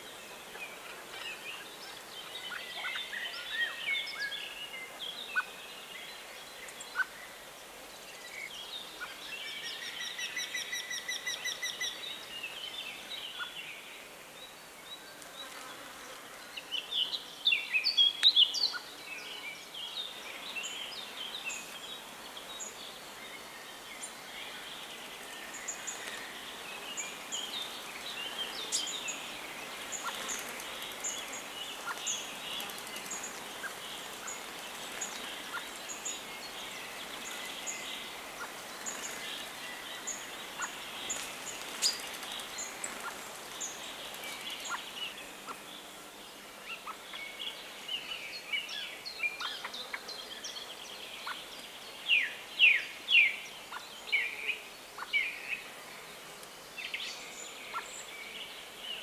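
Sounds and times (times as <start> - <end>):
songbirds singing: 0.0 - 59.0.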